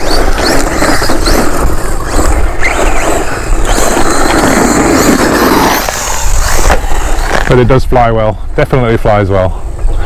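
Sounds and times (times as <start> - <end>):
rising motor whine: 0.0 - 7.5
tyres rushing on loose dirt: 0.0 - 7.6.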